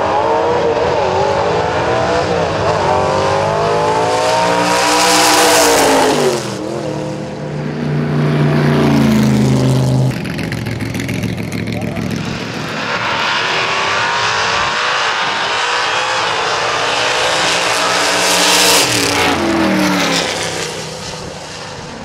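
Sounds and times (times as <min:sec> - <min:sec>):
drag car engines accelerating: 0:00.0 - 0:22.0.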